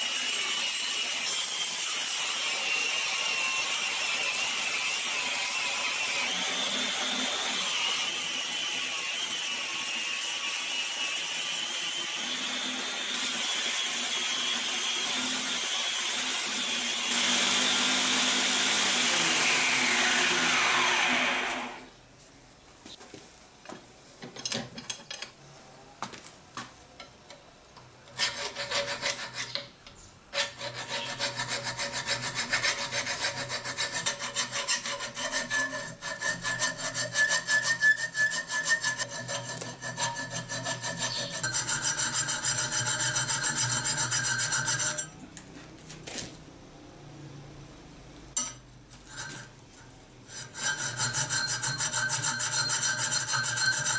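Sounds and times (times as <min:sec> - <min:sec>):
belt grinder winding down: 0:17.1 - 0:21.8
file scraping metal: 0:28.1 - 0:45.2, 0:48.4 - 0:53.9.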